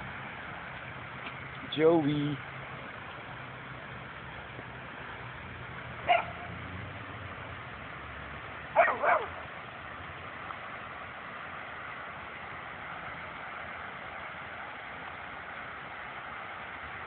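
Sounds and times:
dog giving short high barks: 0:08.8 - 0:09.4.

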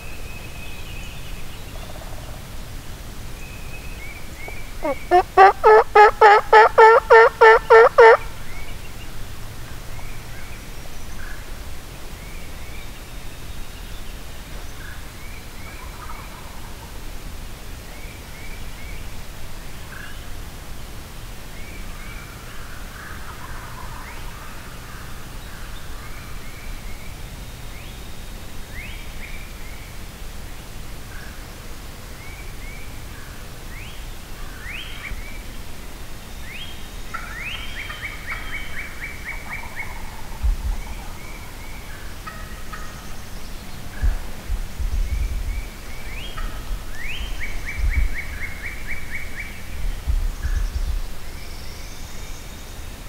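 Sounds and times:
songbirds chirping and whistling: 0:03.4 - 0:09.2, 0:36.3 - 0:53.0
turkey gobbling: 0:04.8 - 0:08.3, 0:42.2 - 0:42.9.

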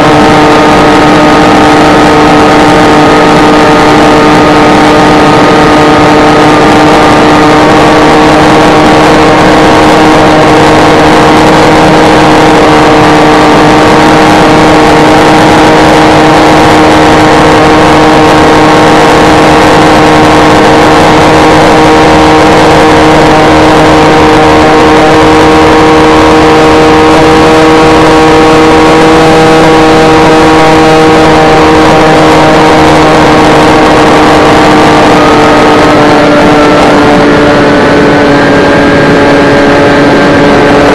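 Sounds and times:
electric motor and propeller whine: 0:00.0 - 0:40.9
wind noise rushing: 0:33.2 - 0:40.9.

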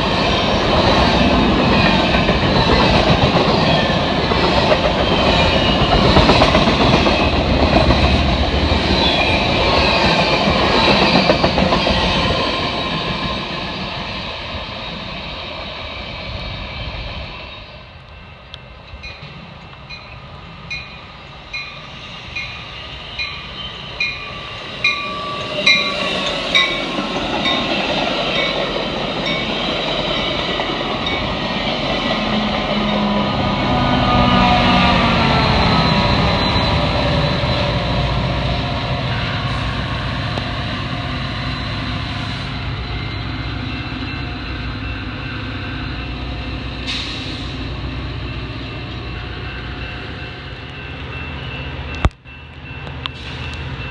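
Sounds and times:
train engine and wheels rumbling: 0:00.0 - 0:53.9
train bell dinging: 0:18.2 - 0:39.7, 0:41.6 - 0:53.9.

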